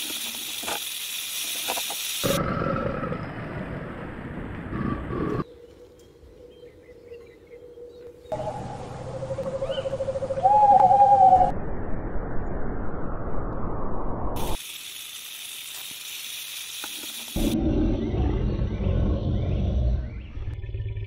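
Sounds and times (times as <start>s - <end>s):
owl hooting: 6.4s - 11.5s
low rumbling: 17.4s - 21.0s
noisy rumble: 17.4s - 21.0s.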